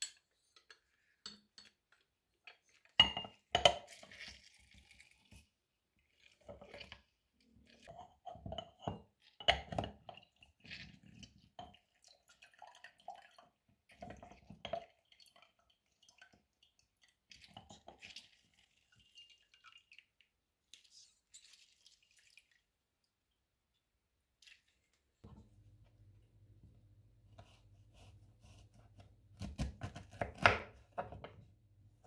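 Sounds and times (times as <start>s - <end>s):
juice squishing and dripping: 10.2s - 23.4s.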